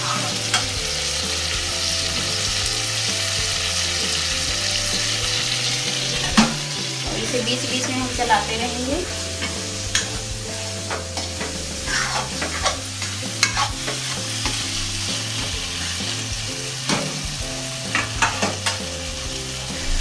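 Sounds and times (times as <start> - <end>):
tomatoes sizzling in pan: 0.0 - 20.0
metal spatula scraping pan: 9.0 - 16.1.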